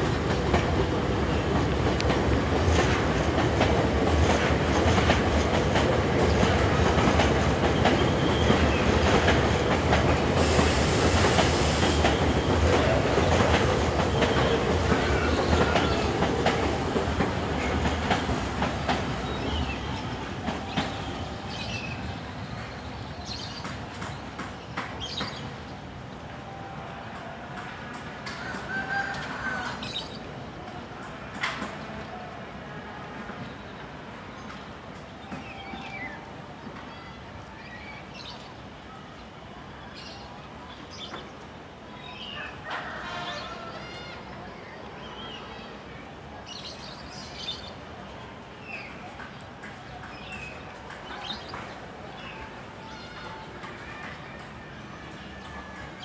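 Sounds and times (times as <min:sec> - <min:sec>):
train wheels clacking over rail joints: 0:00.0 - 0:21.2.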